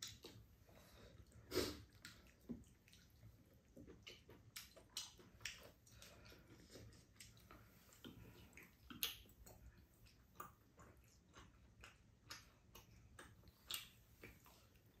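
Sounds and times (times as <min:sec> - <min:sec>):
soft chewing: 0:00.0 - 0:15.0.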